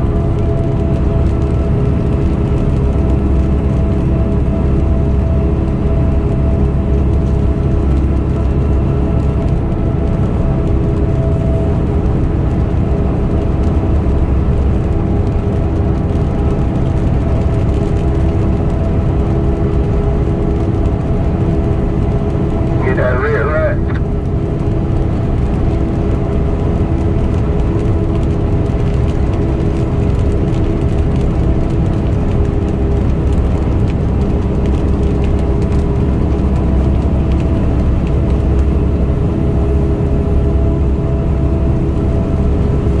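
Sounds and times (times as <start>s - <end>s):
road noise: 0.0s - 43.0s
truck diesel engine rumble: 0.0s - 43.0s.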